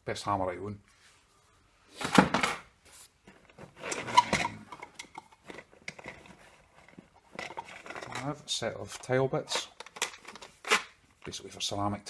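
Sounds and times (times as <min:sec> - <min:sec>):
tools clattering in a tool bag: 0:03.8 - 0:08.4
plastic cases rattling clicks: 0:09.5 - 0:10.8.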